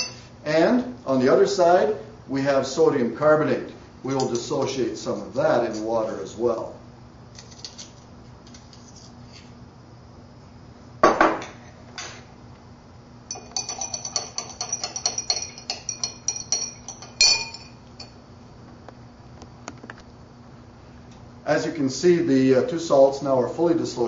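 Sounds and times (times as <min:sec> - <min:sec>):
glass rod clinking in beaker: 0:00.0 - 0:00.2, 0:13.3 - 0:18.2.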